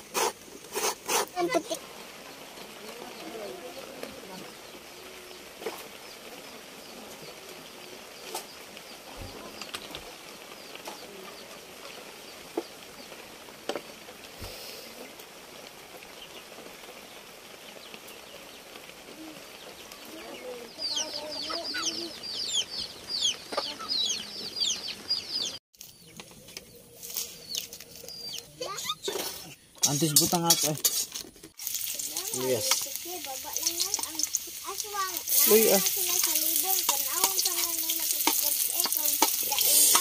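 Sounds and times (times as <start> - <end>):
chickens clucking and chirping: 19.3 - 30.2.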